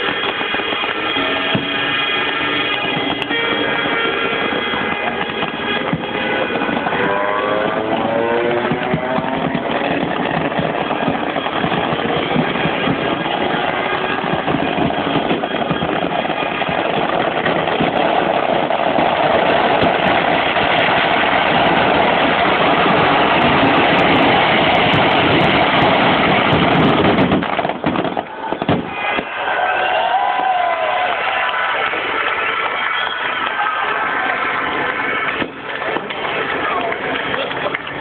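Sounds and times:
motorcycle engine revving high: 0:04.9 - 0:11.2.

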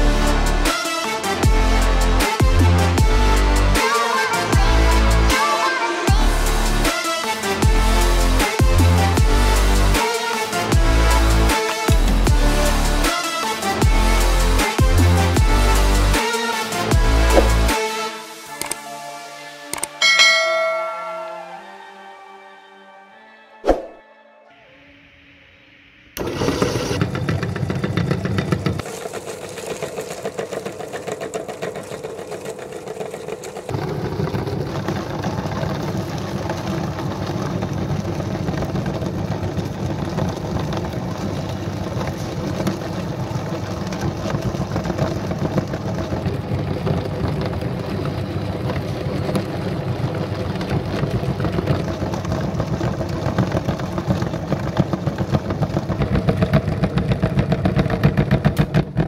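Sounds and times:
electric meat grinder running: 0:26.2 - 0:59.0.

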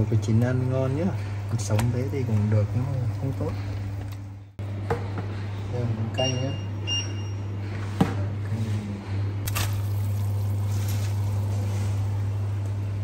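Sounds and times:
greens dropped into water: 0:09.5 - 0:11.2.

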